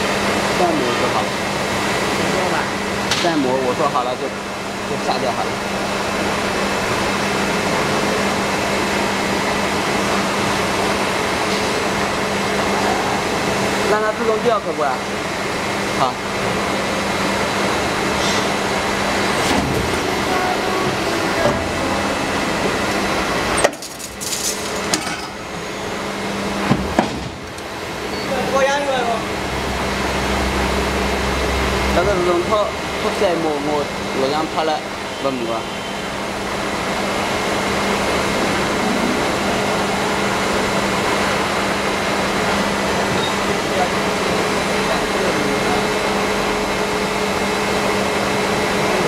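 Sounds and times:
hydraulic machine hum: 0.0 - 49.0.

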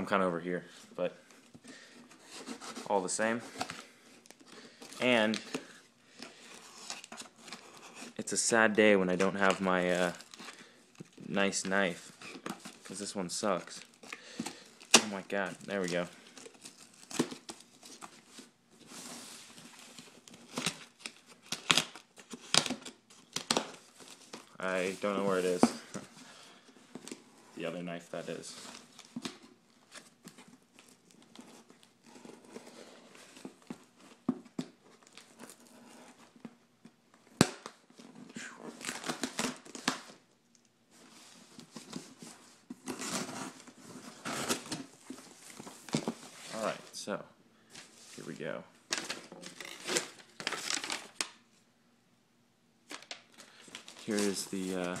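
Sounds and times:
tape and cardboard ripping: 49.0 - 51.3.

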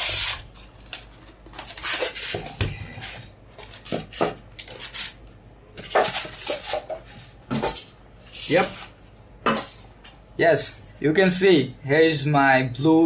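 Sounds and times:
styrofoam rubbing and scraping: 0.0 - 0.7, 1.6 - 5.2, 8.2 - 9.0.

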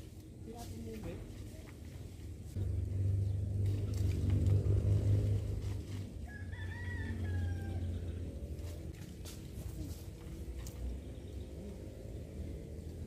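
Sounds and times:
loud low rumble: 2.6 - 6.1
rooster crowing: 6.2 - 8.2.

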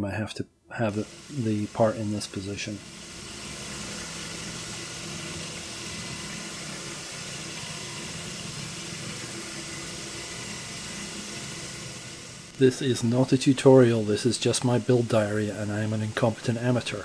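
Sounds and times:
lathe drilling metal: 0.9 - 17.0.

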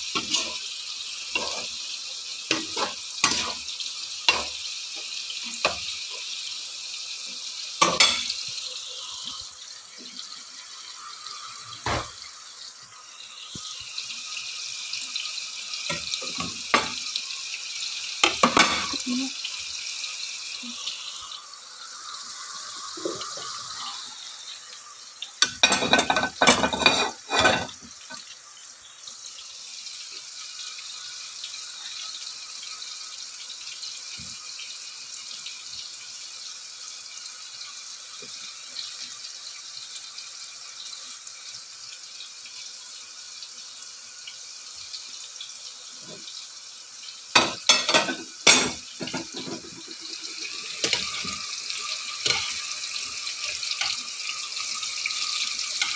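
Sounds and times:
fries sizzling in hot oil: 0.0 - 55.9
cookware and utensils clattering: 0.1 - 0.6, 1.3 - 1.8, 2.5 - 3.7, 4.3 - 6.2, 7.8 - 8.4, 11.8 - 12.2, 15.9 - 17.1, 18.2 - 19.3, 25.4 - 28.2, 47.3 - 52.7, 55.2 - 55.9.

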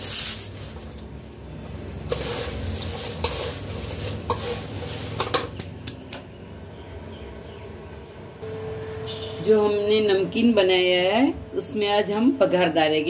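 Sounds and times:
dry flakes rustling and crunching: 0.0 - 5.7.

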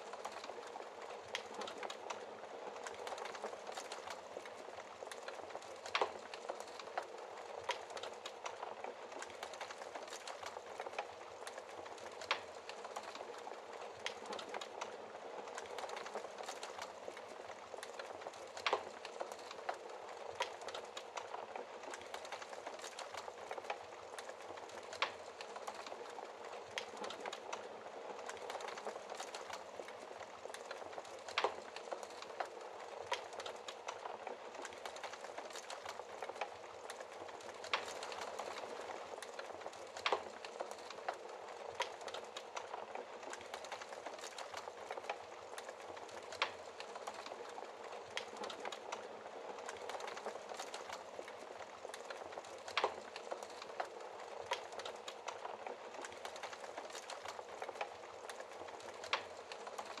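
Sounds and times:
wood fire crackling and popping: 0.0 - 60.0.

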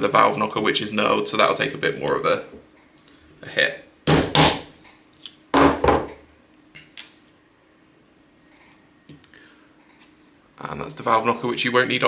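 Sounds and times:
hammer tapping metal punch: 4.1 - 5.8.

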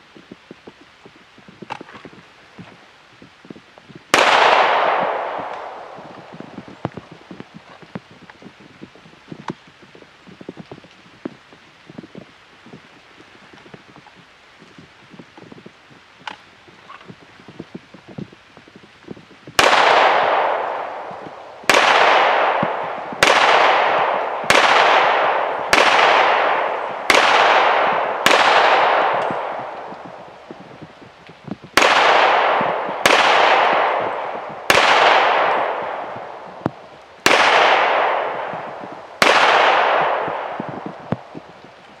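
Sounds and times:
pistol shots with echo: 4.1 - 7.1, 19.6 - 30.4, 31.8 - 41.4.

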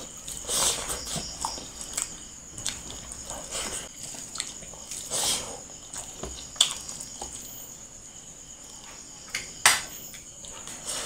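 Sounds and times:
person chewing food: 0.0 - 7.9
crickets trilling: 0.0 - 11.0.

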